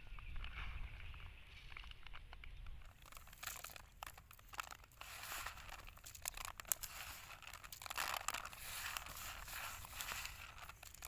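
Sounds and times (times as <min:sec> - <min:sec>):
flakes and grains rustling: 0:02.0 - 0:11.0.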